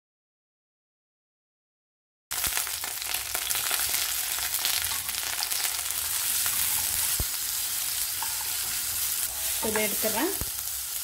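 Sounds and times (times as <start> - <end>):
tomatoes sizzling in oil: 2.3 - 11.0.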